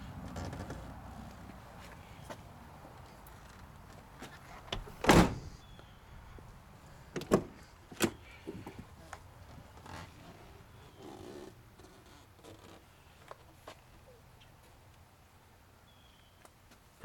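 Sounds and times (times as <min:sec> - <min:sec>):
car door slamming shut: 0:04.7 - 0:05.6, 0:07.2 - 0:08.2.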